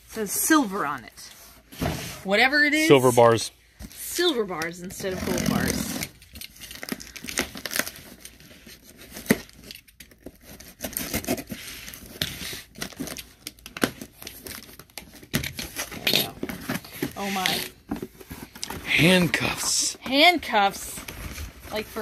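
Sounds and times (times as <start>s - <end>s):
packaging crinkling and tearing: 6.0s - 19.9s.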